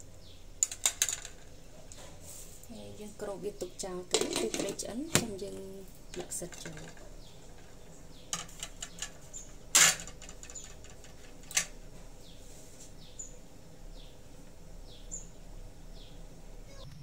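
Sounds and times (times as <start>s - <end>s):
faint high bird chirps: 14.8s - 17.0s.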